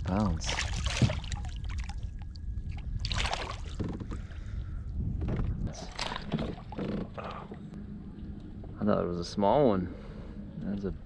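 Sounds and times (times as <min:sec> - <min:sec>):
low rumble: 0:00.0 - 0:11.0
water splashing: 0:00.2 - 0:03.8.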